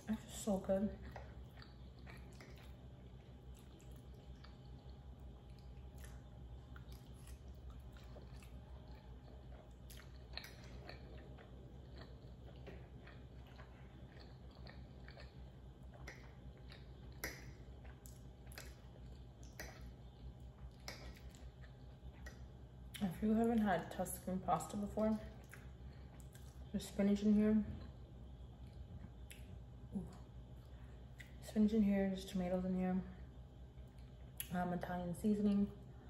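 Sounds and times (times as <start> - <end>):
steady low hum: 0.0 - 36.0
close-up chewing with mouth clicks: 0.6 - 23.2, 25.1 - 26.7.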